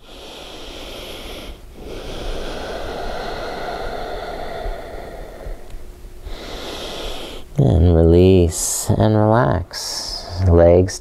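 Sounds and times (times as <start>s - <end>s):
man breathing deeply: 0.0s - 7.6s.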